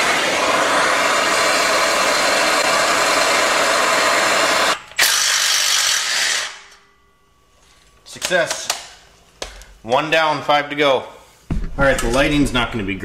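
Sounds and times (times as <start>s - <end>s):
gas torch hissing: 0.0s - 6.6s
electric impact wrench running: 0.0s - 6.8s.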